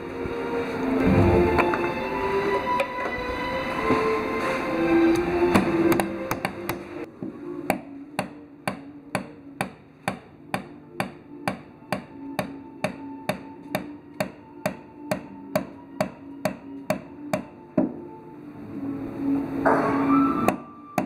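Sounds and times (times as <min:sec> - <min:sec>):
hammer pounding wood nails: 0:07.7 - 0:18.0.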